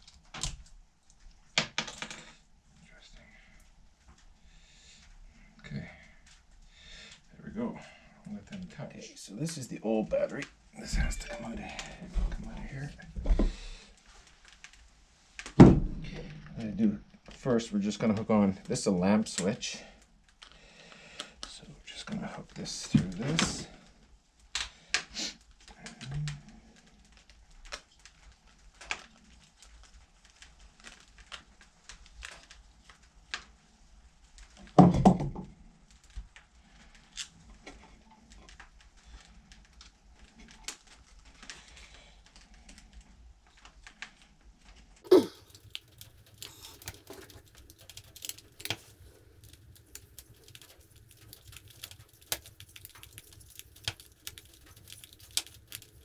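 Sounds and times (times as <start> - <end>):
faint low hum: 2.2 - 14.1
dull thump: 15.6 - 16.1.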